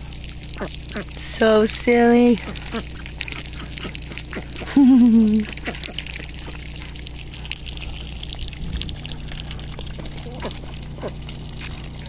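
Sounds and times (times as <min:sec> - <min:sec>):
ducks splashing in puddles: 0:00.0 - 0:12.0
water trickling: 0:00.0 - 0:12.0
low hum: 0:02.4 - 0:12.0.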